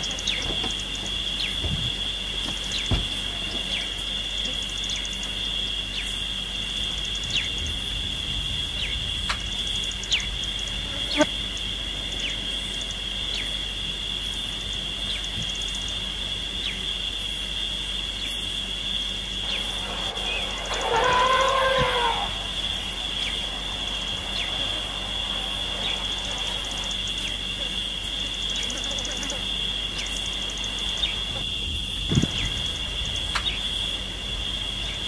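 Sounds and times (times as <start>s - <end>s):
falling bird calls: 0.0s - 5.2s, 19.4s - 35.0s
insects droning: 0.0s - 35.0s.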